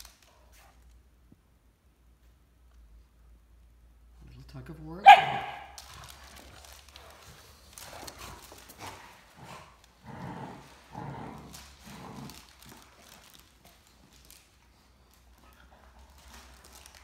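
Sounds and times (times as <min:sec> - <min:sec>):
dogs growling and grunting: 0:05.8 - 0:13.4.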